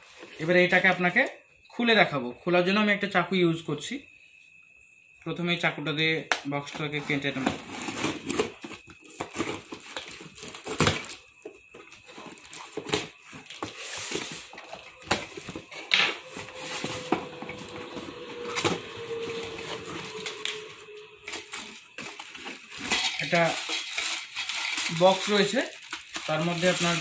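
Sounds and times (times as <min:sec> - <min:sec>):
cardboard flaps tearing and rustling: 0:07.4 - 0:11.3, 0:21.2 - 0:27.0.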